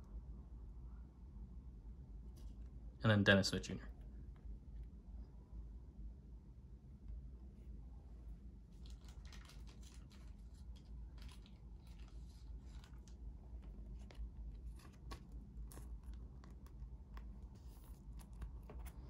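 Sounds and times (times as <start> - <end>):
cards being shuffled: 8.8 - 19.0.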